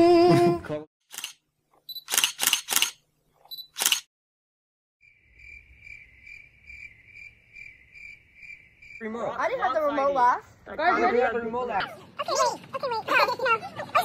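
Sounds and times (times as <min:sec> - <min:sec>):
sharp clicks: 0:02.0 - 0:03.0, 0:03.6 - 0:04.1
cricket chirping: 0:05.0 - 0:10.0.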